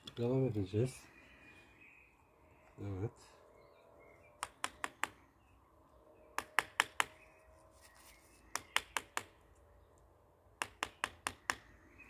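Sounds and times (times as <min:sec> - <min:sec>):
hammer tapping a nail: 0:04.4 - 0:05.2, 0:06.4 - 0:07.2, 0:08.5 - 0:09.3, 0:10.6 - 0:11.7.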